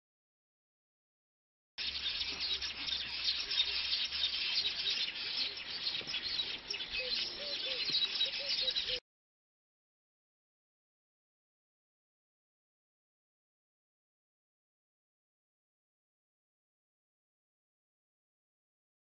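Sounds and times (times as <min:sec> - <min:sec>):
birds chattering: 0:01.8 - 0:09.0.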